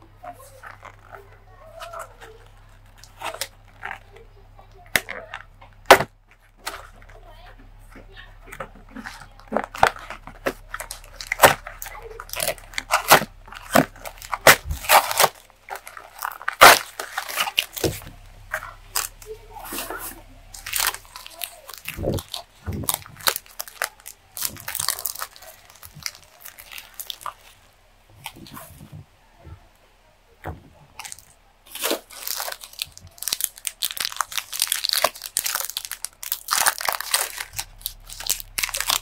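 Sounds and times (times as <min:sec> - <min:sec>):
wrappers crinkling and ripping: 0:00.0 - 0:29.6, 0:30.8 - 0:39.0
cardboard flap tearing: 0:08.9 - 0:27.6, 0:31.0 - 0:39.0.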